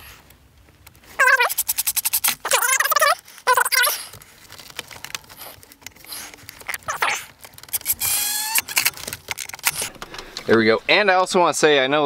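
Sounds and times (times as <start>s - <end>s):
tool clicks and rattles: 5.8s - 10.6s
impact driver whining: 7.0s - 10.2s.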